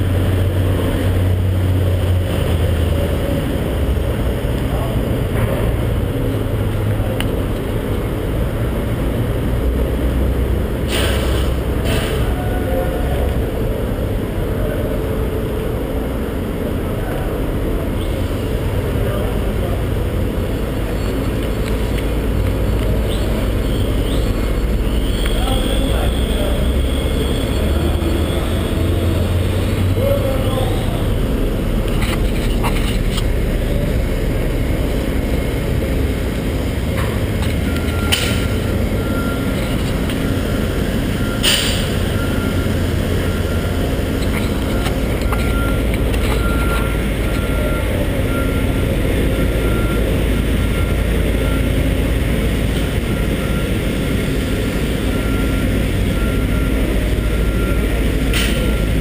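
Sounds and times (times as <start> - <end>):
low engine rumble: 0.0 - 59.0
vehicle reversing alarm beeping: 16.2 - 59.0.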